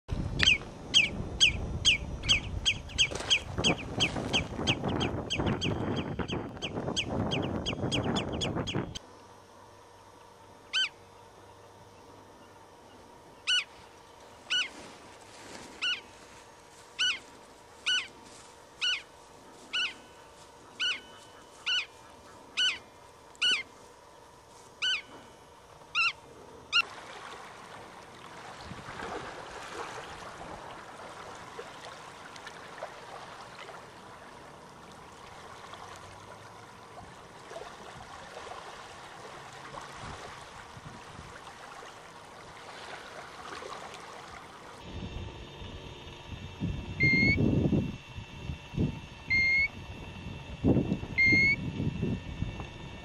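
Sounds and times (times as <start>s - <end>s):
wind noise on microphone: 0.1s - 9.0s, 40.0s - 41.4s, 44.8s - 53.0s
wading bird sharp falling calls: 0.4s - 8.5s, 13.4s - 14.9s, 15.7s - 16.2s, 16.9s - 18.2s, 18.8s - 23.8s, 24.8s - 25.3s, 25.9s - 27.0s.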